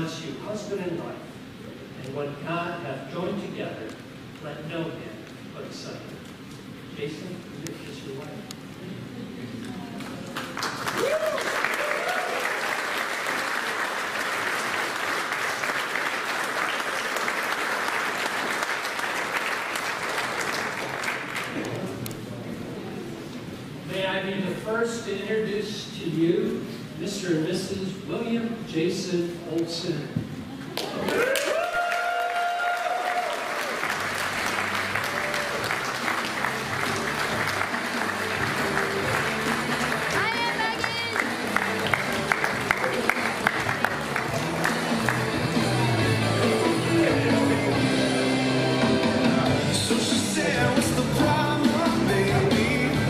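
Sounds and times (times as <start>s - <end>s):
crowd applauding: 10.0s - 21.7s, 30.8s - 49.3s.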